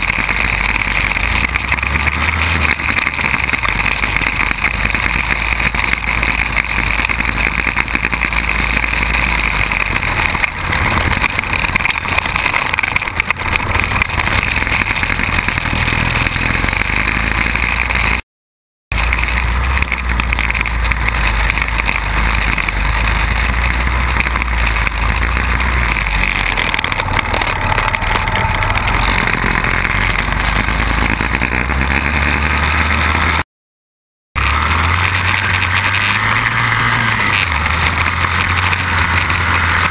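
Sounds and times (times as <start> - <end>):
quad bike engine running: 0.0 - 18.2, 18.9 - 33.4, 34.4 - 39.9.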